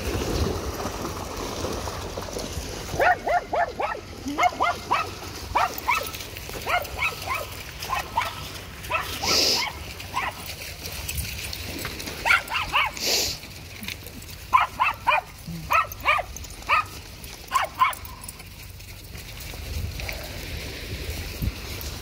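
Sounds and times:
dog yipping: 3.0 - 10.4, 12.2 - 13.0, 14.5 - 16.9, 17.5 - 18.2.

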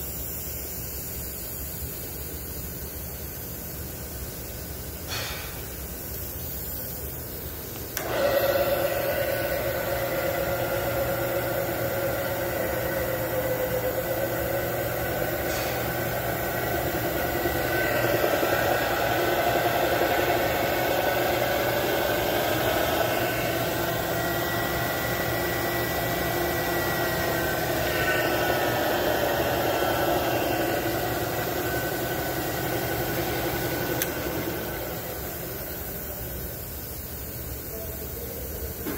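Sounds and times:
milling machine motor whine: 7.9 - 36.6.

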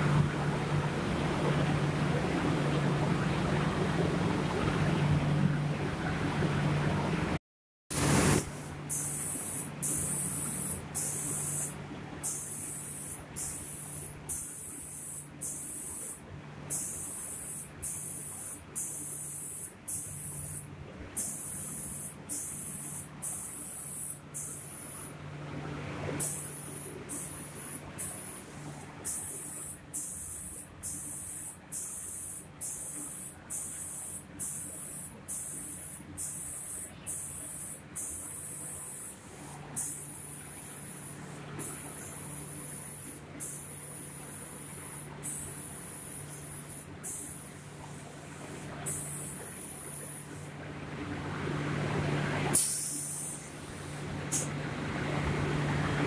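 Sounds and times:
low machine hum: 0.0 - 7.4, 8.0 - 56.0
spray guns hissing in bursts: 8.0 - 25.2, 26.2 - 50.6, 52.5 - 54.5.

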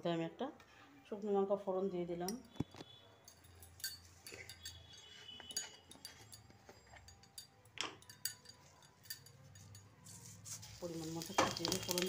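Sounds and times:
utensils clinking on cookware: 3.3 - 12.0.

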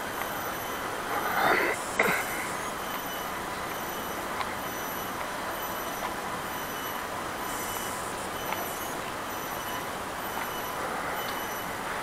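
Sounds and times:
steady hiss: 0.0 - 12.0
soft ticks: 8.4 - 9.2, 10.4 - 10.6, 11.2 - 11.5.

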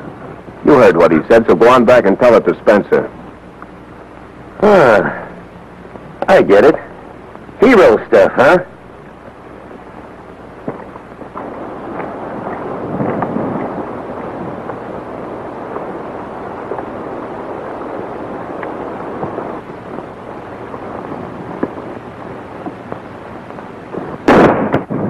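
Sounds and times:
horses galloping: 5.9 - 25.0.

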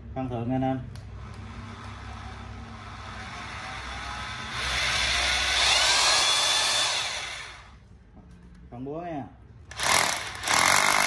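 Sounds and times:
rotary hammer motor running: 1.2 - 7.8, 9.7 - 11.0.

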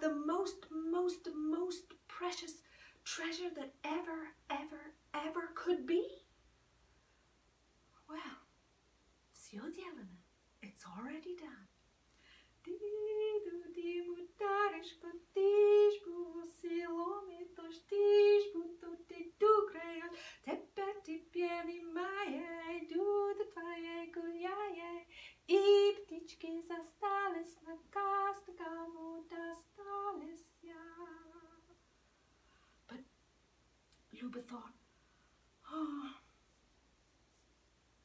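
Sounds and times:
woman singing unaccompanied: 0.0 - 6.2, 12.6 - 31.8.

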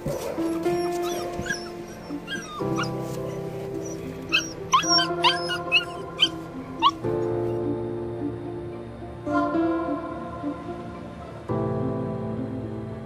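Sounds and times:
puppies whimpering: 0.0 - 7.1
background music with sustained chords: 0.0 - 13.0.

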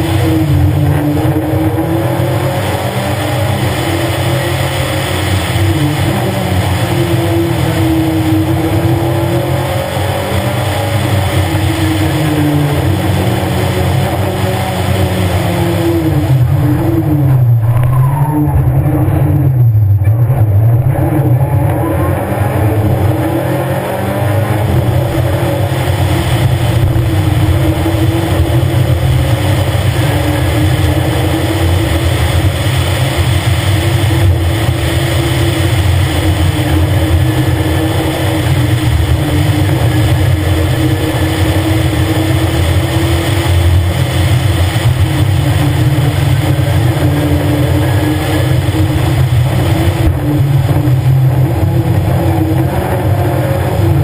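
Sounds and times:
rally car engine revving: 0.0 - 54.0.

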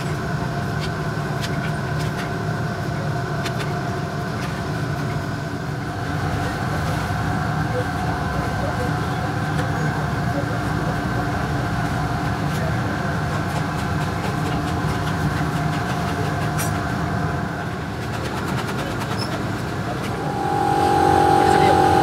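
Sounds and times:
loud steady whine: 19.8 - 22.0
machine drone: 20.0 - 22.0
steady hum tones: 20.0 - 22.0.

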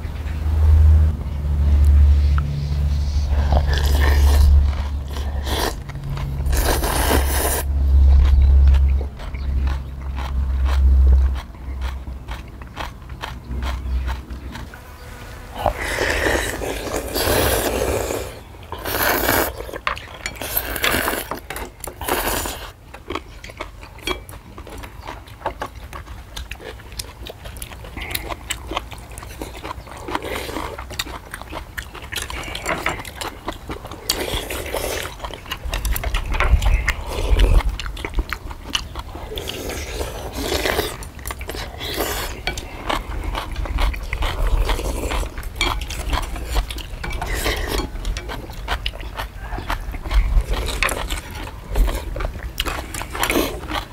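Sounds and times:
low rumble: 0.0 - 14.5
chewing: 1.8 - 14.9, 15.6 - 53.9
people slurping noodles: 3.2 - 7.7, 15.6 - 19.8.

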